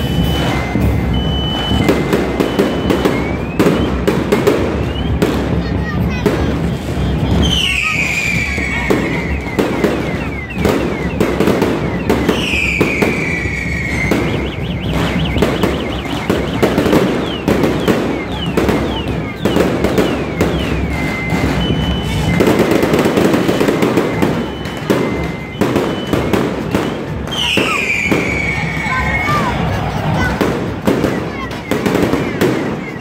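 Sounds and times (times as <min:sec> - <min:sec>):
falling whistles: 0:00.0 - 0:05.6, 0:06.6 - 0:29.7, 0:30.8 - 0:33.0
firecrackers crackling: 0:00.0 - 0:33.0.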